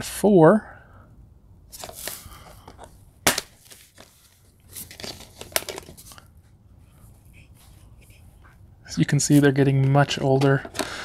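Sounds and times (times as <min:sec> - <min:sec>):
clicks and rustles of discs: 0:01.8 - 0:06.3, 0:09.4 - 0:11.0.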